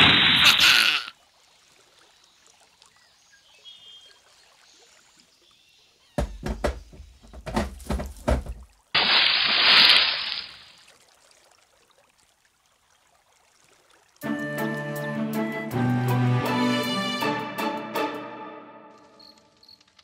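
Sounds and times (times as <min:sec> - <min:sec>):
water splashing: 0:00.0 - 0:03.1, 0:06.2 - 0:14.2
sharp knocks and heavy thuds: 0:06.2 - 0:08.7.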